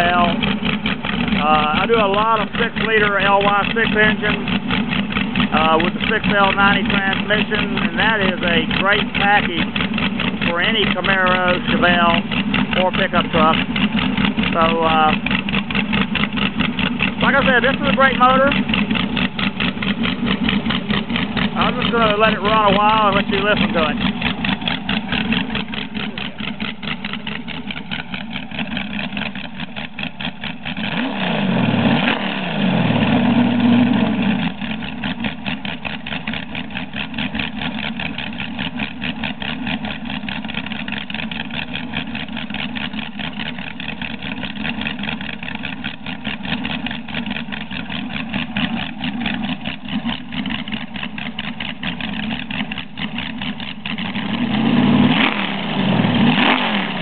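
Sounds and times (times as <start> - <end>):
engine idling and revving: 0.0 - 57.0.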